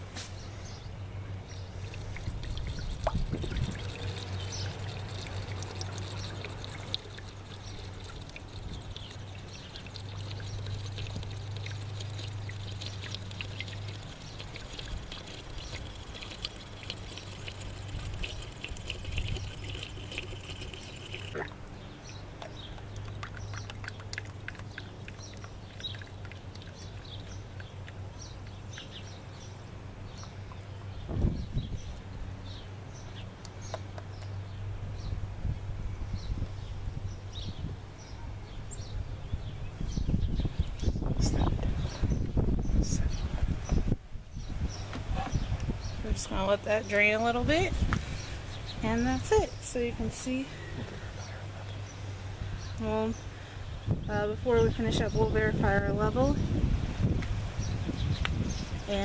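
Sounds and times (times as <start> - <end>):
oil pouring through funnel: 1.7 - 21.8, 22.8 - 28.0.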